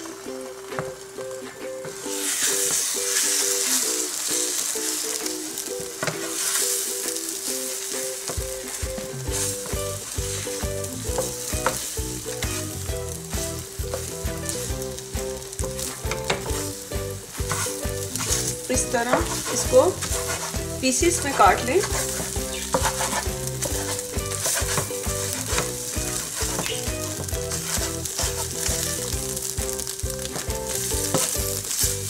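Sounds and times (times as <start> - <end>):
background music: 0.0 - 32.0
eggs sizzling in oil: 0.0 - 32.0
spatula scraping pan: 6.0 - 7.2, 8.0 - 14.9, 15.5 - 32.0.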